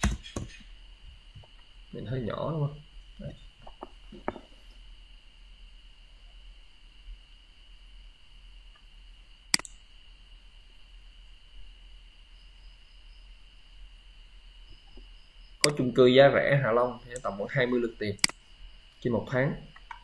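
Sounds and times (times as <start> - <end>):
low hum: 0.0 - 20.0
computer mouse click: 9.5 - 9.8, 18.2 - 18.4.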